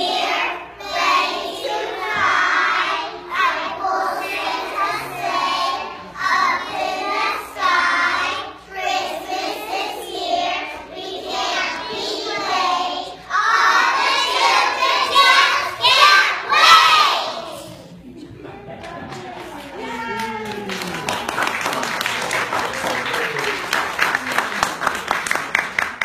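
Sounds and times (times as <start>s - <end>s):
young children singing: 0.0s - 18.0s.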